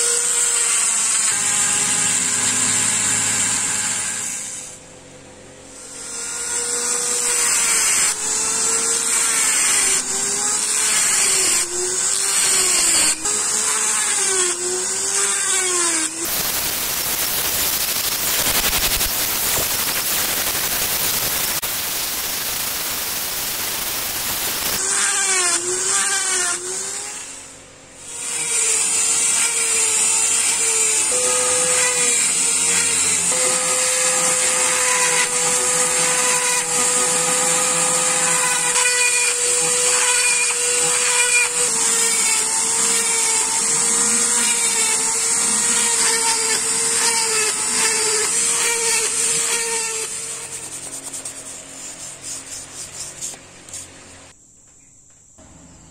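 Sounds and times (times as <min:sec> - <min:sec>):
rotary engraver motor whine: 0:00.0 - 0:04.8, 0:05.6 - 0:25.1
rough hiss: 0:16.3 - 0:24.8.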